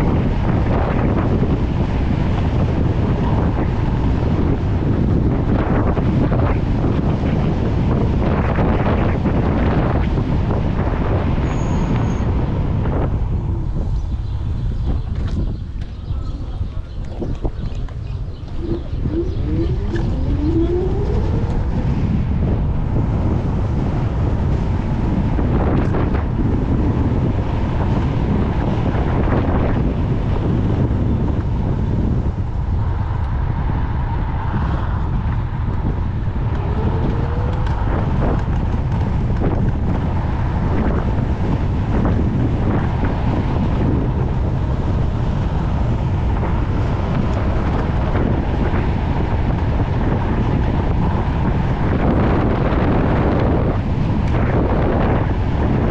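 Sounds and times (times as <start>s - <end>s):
wind buffeting microphone: 0.0s - 55.9s
faint rising whines: 18.2s - 23.0s.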